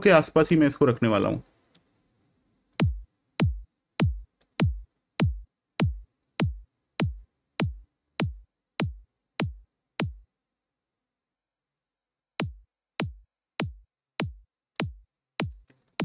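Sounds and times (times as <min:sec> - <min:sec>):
electronic kick drum beat: 0:02.8 - 0:10.2, 0:12.4 - 0:15.6.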